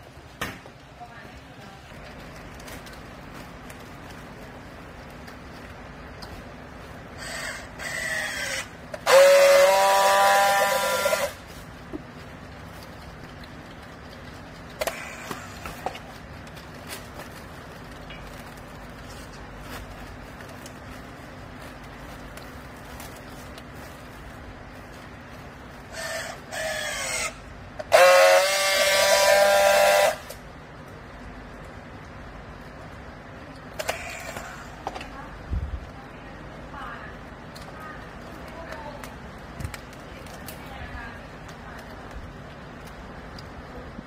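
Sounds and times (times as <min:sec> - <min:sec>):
strapping tool motor whirring: 0:07.2 - 0:11.5, 0:25.9 - 0:30.4, 0:33.8 - 0:34.7
strapping tool whine: 0:07.2 - 0:11.5, 0:25.9 - 0:30.4, 0:33.8 - 0:34.8.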